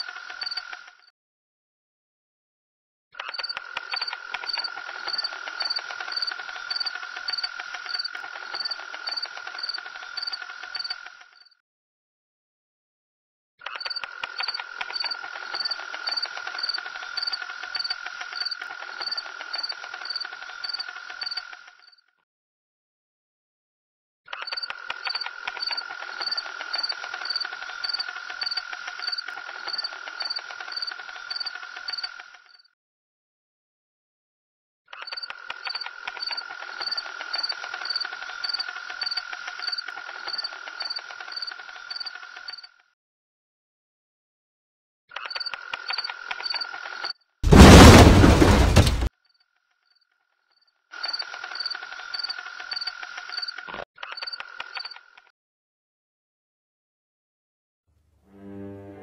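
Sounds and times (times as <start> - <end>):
cricket-like trill: 0.0 - 1.1, 3.2 - 11.6, 13.6 - 22.1, 24.3 - 32.7, 34.9 - 42.9, 45.1 - 55.3
insects chirping: 3.3 - 11.5, 13.8 - 21.6, 24.5 - 32.3, 35.6 - 42.6, 51.0 - 53.8
steady high insect drone: 3.8 - 11.2, 25.0 - 32.2, 35.7 - 42.7.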